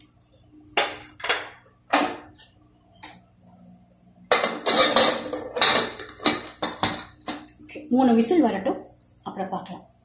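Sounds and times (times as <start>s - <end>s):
metal clattering and knocking: 4.3s - 7.1s.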